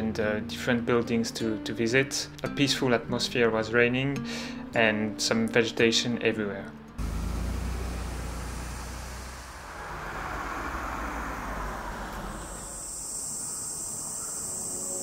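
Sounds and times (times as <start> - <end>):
high insect buzz: 7.0 - 15.0.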